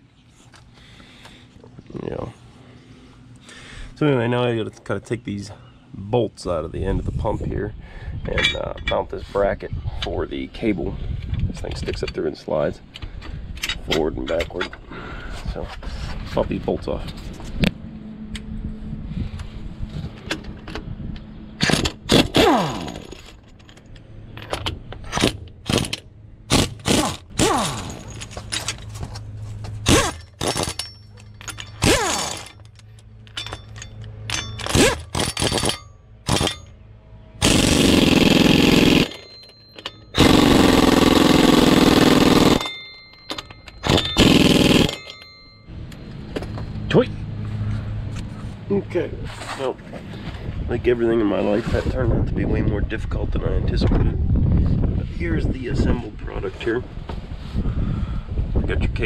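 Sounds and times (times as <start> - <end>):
pneumatic impact wrench: 21.6 - 23.3, 25.1 - 28.3, 29.8 - 32.6, 33.3 - 36.7, 37.4 - 42.8, 43.7 - 45.2.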